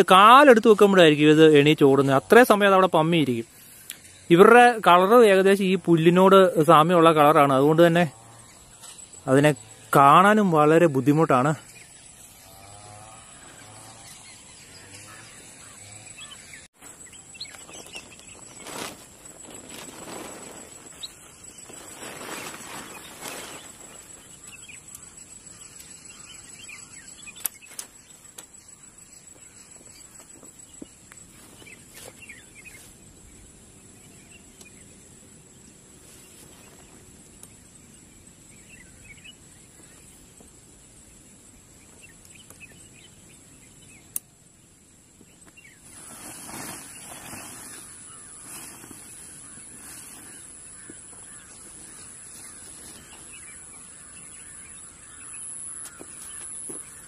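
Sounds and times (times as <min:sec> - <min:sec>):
birds calling: 0:00.0 - 0:57.0
rustling: 0:16.8 - 0:25.7, 0:45.8 - 0:55.2
tent poles clicking: 0:17.5 - 0:25.1, 0:27.3 - 0:28.6.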